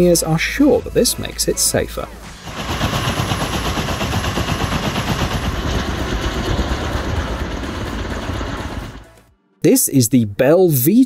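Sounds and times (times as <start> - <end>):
helicopter blades chopping: 2.2 - 9.3
helicopter engine rushing: 2.2 - 9.3.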